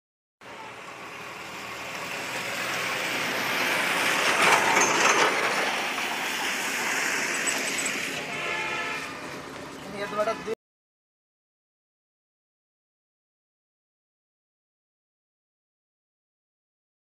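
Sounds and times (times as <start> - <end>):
tyre hiss on wet road: 0.5 - 4.4, 5.3 - 9.7.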